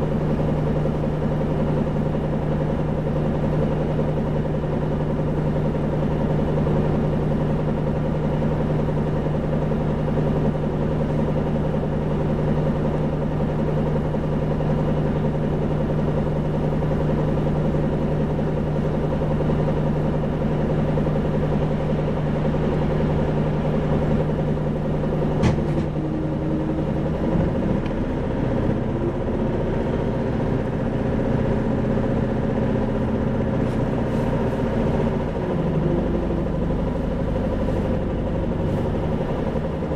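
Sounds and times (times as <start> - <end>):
diesel bus engine idling: 0.0 - 39.9
bus engine revving up: 22.6 - 39.9.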